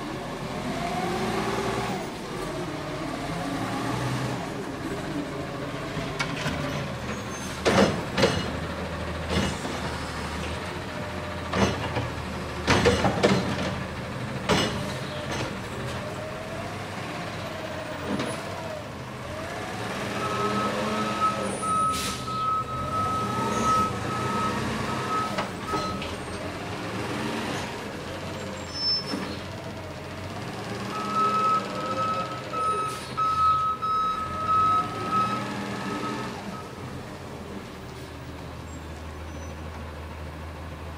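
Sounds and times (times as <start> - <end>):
truck engine revving: 15.7 - 28.6, 34.2 - 36.6
reversing alarm beeping: 20.2 - 26.1, 30.9 - 36.8.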